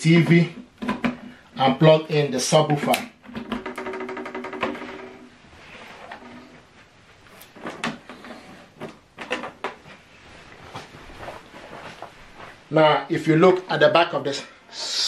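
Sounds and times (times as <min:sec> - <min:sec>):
cables and plugs knocking and clicking: 0:00.6 - 0:01.3, 0:02.7 - 0:05.2, 0:08.8 - 0:10.0.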